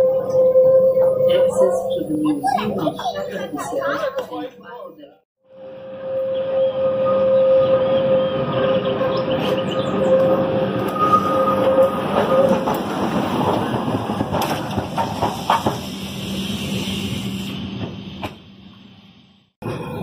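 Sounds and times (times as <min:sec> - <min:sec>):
tram rumbling and rattling: 0:00.0 - 0:04.6, 0:05.6 - 0:20.0
sharp track clacks: 0:12.1 - 0:15.9.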